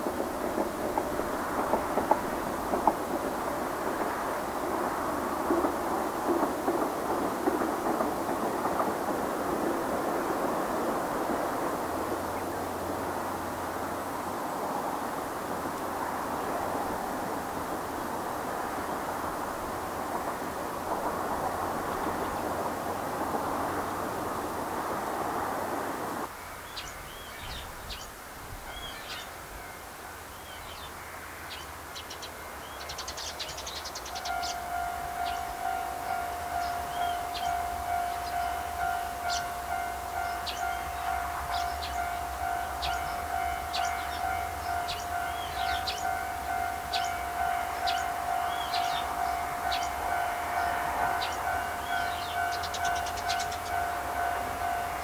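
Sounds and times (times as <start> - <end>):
birds chirping: 26.6 - 28.1, 30.3 - 54.9
level crossing warning bell: 34.1 - 55.0.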